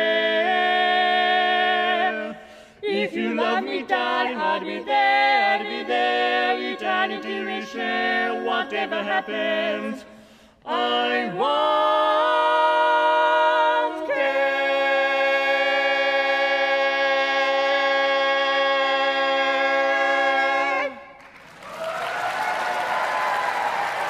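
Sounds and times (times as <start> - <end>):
barbershop quartet singing a cappella: 0.0 - 21.2
audience applause: 21.2 - 24.0.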